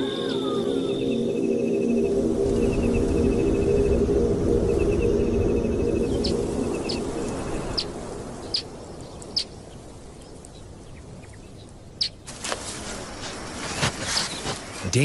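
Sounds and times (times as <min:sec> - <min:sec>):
low drone: 0:00.0 - 0:09.0
birds chirping: 0:00.0 - 0:15.0.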